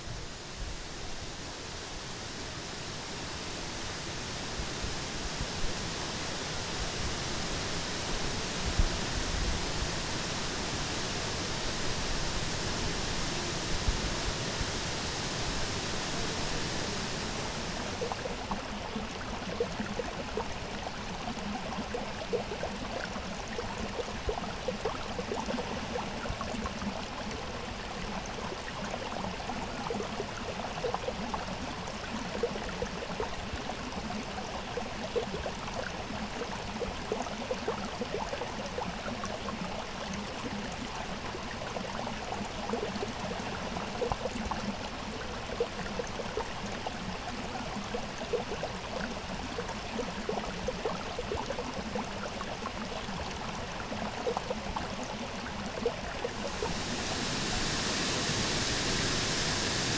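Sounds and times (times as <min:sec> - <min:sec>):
creek babbling over stones: 0:15.4 - 0:59.9.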